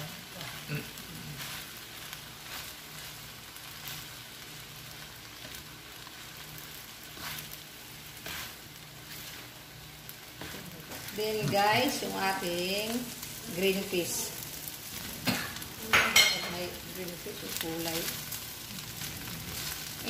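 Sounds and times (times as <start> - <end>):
food sizzling in a wok: 0.0 - 20.0
spatula scraping a pan: 7.0 - 9.6.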